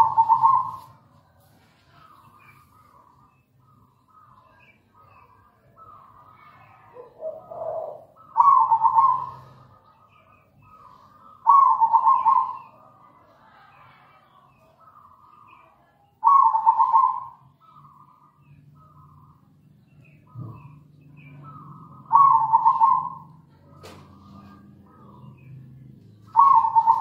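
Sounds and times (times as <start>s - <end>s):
dove cooing: 0.0s - 1.0s, 6.9s - 12.7s, 16.2s - 17.9s, 20.3s - 25.5s, 26.2s - 27.0s.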